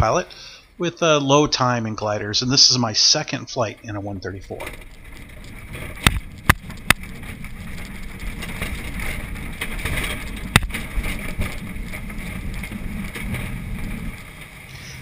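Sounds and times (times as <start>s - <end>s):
cockpit rumble and air rush: 3.8s - 15.0s
sharp knocks: 10.5s - 11.4s.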